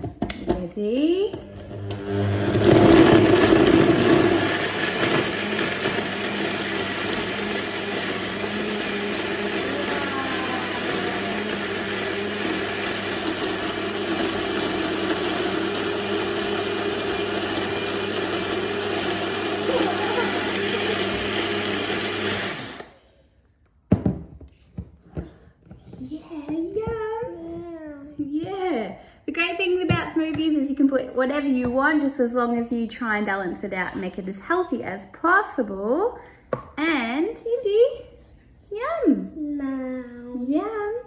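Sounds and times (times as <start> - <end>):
blender motor running: 1.4 - 23.0.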